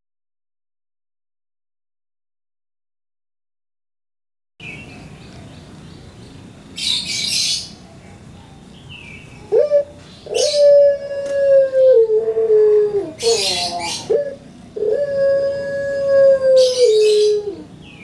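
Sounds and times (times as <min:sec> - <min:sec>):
dove cooing: 0:09.4 - 0:17.8.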